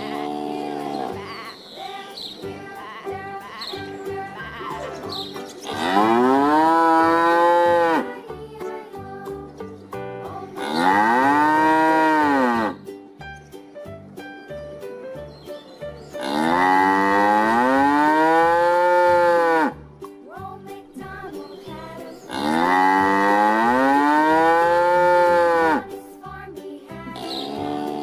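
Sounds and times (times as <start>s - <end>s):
light rhythmic music: 0.0s - 28.0s
cow mooing: 5.7s - 8.1s, 10.6s - 12.8s, 16.2s - 19.8s, 22.3s - 25.8s.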